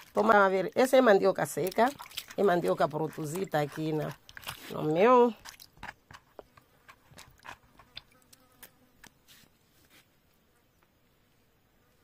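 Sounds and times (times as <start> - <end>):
small splashes in water: 0.0 - 5.7.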